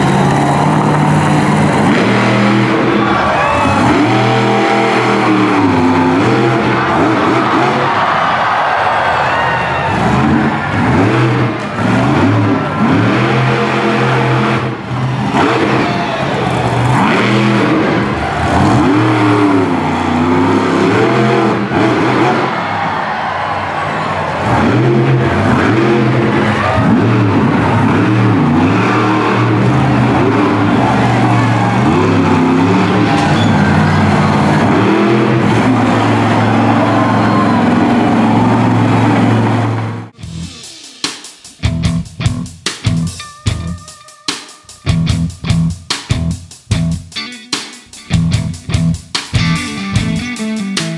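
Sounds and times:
truck engine revving hard: 0.0s - 40.8s.

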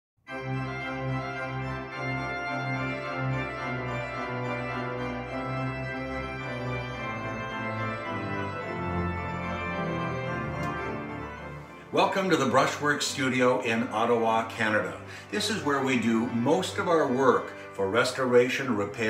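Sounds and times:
organ playing sustained chords: 0.3s - 19.0s.

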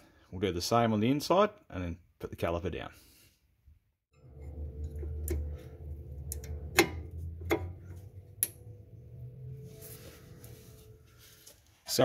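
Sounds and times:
low steady hum: 4.2s - 11.8s.

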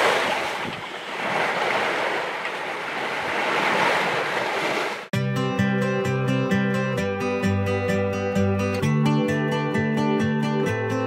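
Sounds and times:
water rushing past hull: 0.0s - 5.1s
wind: 0.0s - 5.1s
guitar music: 5.2s - 11.0s.

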